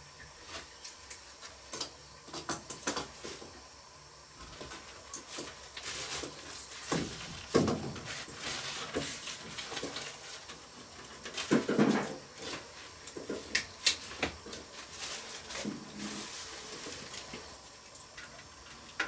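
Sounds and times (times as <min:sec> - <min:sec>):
plastic bag rustling: 0:04.6 - 0:17.7.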